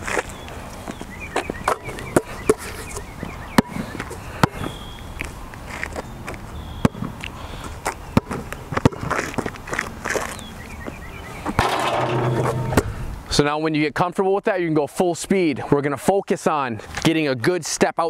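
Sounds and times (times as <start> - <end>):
basketball bouncing on asphalt: 3.2 - 4.8, 6.7 - 7.2, 7.9 - 9.5, 11.5 - 12.9.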